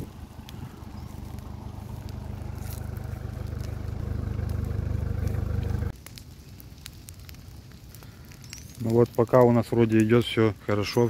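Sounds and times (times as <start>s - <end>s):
engine-like hum: 0.0s - 6.0s
faint crackles and clicks: 0.0s - 11.0s.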